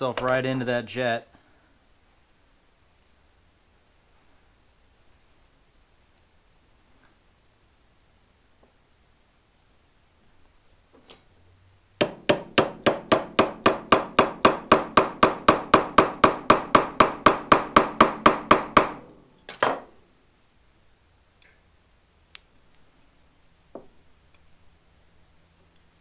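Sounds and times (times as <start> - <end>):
hammer tapping metal: 12.0 - 19.1.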